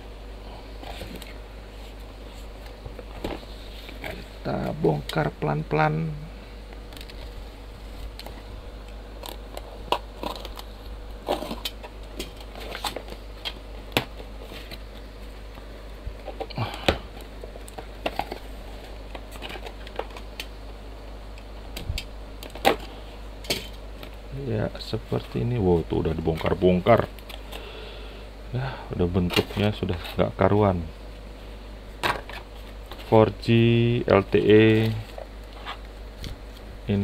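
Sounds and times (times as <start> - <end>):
plastic mailer crinkling: 9.2 - 15.4.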